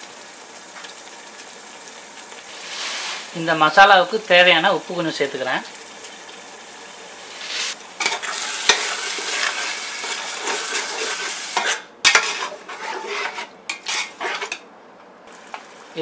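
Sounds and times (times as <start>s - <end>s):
oil sizzling in pot: 0.0s - 16.0s
metal spoon scraping pot: 9.4s - 14.6s.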